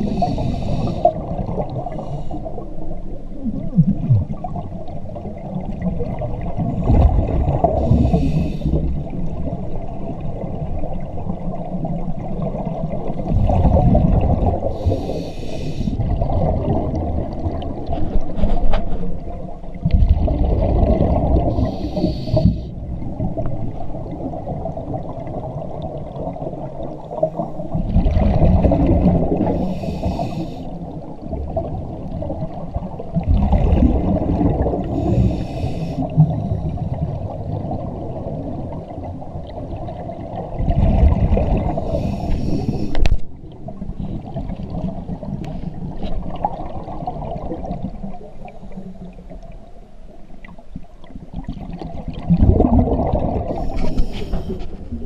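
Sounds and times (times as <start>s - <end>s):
regulator hissing inhale: 0.0s - 1.3s, 1.9s - 2.6s, 7.8s - 9.0s, 14.6s - 16.0s, 21.5s - 22.7s, 29.4s - 30.9s, 34.8s - 36.6s, 41.7s - 43.2s, 53.5s - 54.8s
gurgling exhaled bubbles: 0.0s - 49.6s, 51.0s - 55.0s
low rumble of water: 0.0s - 55.0s.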